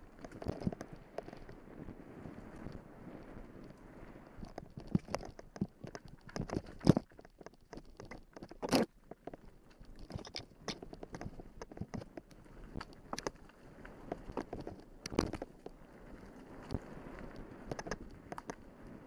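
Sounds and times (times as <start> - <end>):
bicycle clattering and rattling: 0.0 - 1.6, 4.3 - 18.6
wind noise on microphone: 0.0 - 19.0.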